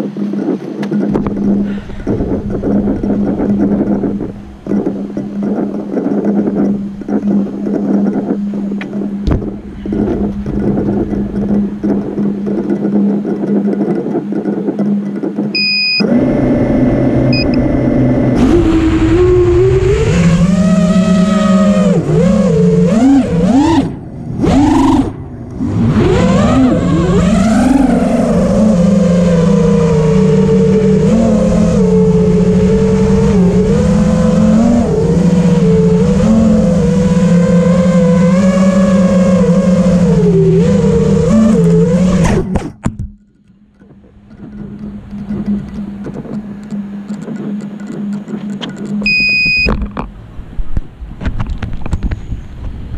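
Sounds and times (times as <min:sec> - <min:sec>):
quadcopter motors whining: 0:00.7 - 0:14.7, 0:15.6 - 0:42.6.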